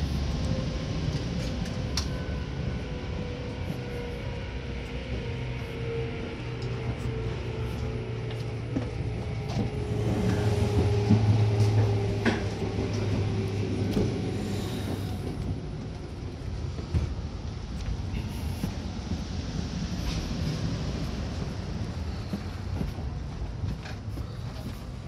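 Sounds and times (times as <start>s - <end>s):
train hum and rumble: 0.0s - 25.0s.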